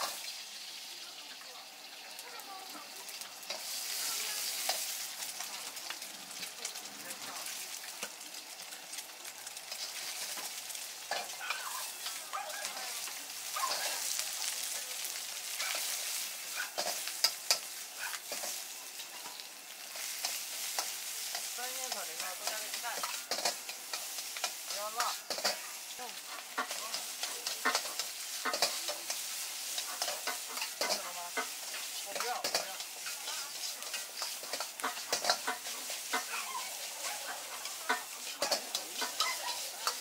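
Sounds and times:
rice sizzling in a wok: 0.0 - 40.0
metal ladle scraping a wok: 9.7 - 14.6, 15.4 - 40.0.

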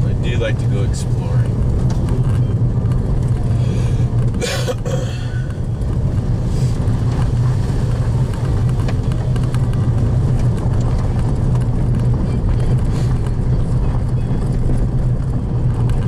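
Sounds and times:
car engine running: 0.0 - 16.0
tyre and road noise: 0.0 - 16.0.

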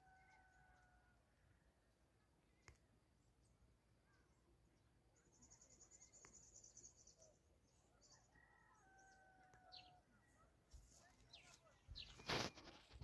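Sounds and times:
distant rooster crowing: 0.0 - 1.3, 8.0 - 10.1.

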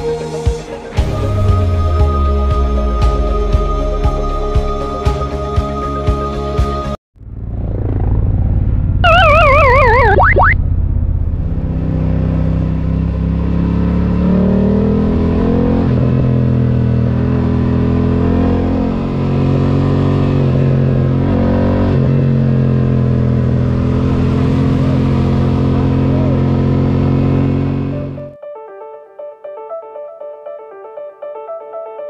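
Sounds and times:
motorcycle engine running: 7.2 - 13.3, 22.1 - 28.4
wind and road noise: 7.2 - 28.3.

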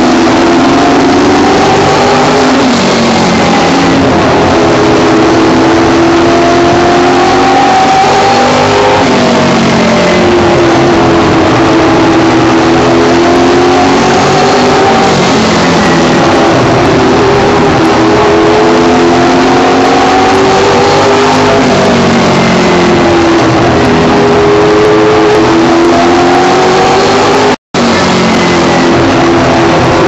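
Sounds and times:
race car engine revving: 0.0 - 30.0.

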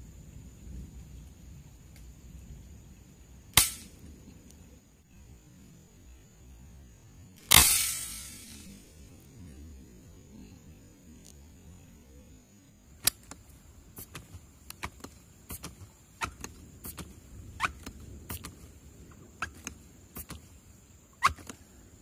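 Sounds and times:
air rifle clicks: 3.6 - 4.0, 7.4 - 8.8, 13.0 - 18.7, 19.4 - 20.5
air rifle pump squeaks: 21.2 - 21.5.

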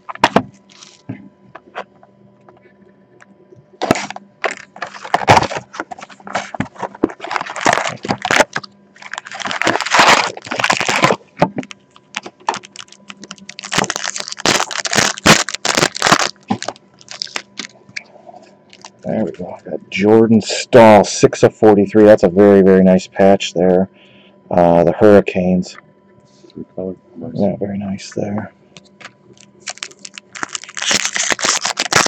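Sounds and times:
wrapper crinkling and tearing: 3.8 - 17.8, 18.7 - 19.0, 29.4 - 32.0
cards clicking and rustling: 29.0 - 32.0.

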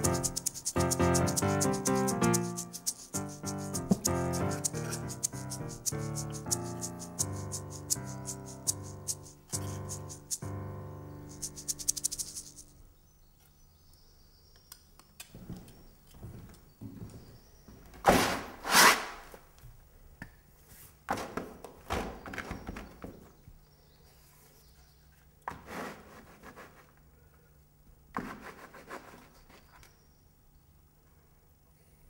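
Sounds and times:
brush scraping canvas: 0.0 - 10.5.

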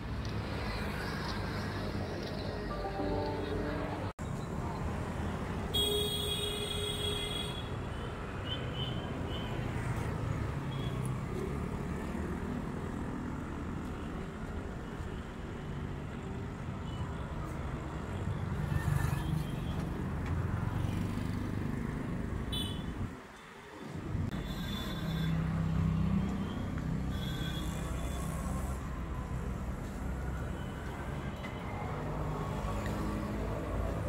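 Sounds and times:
rumble of passing vehicles: 0.0 - 34.0
brief high-pitched tone: 2.7 - 4.1.

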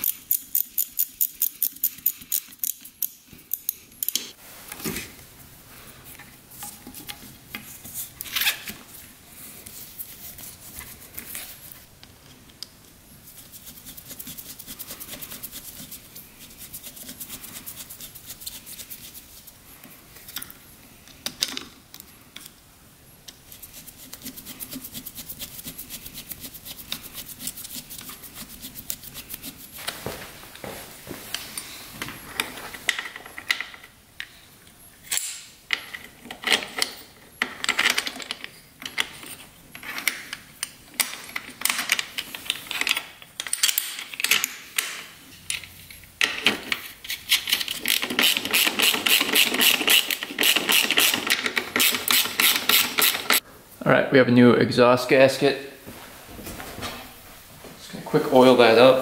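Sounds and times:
metal parts knocking and rubbing: 35.1 - 53.4.

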